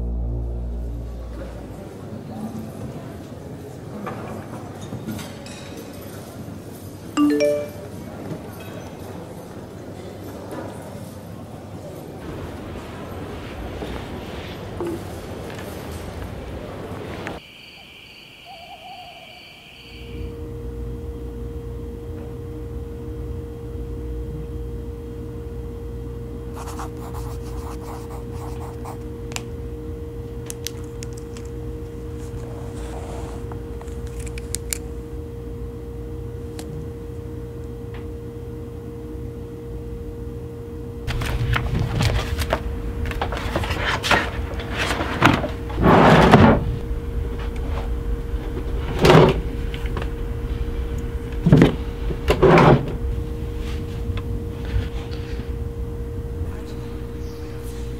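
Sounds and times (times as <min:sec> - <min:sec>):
steady low hum: 0:00.0 - 0:02.9, 0:20.1 - 0:57.9.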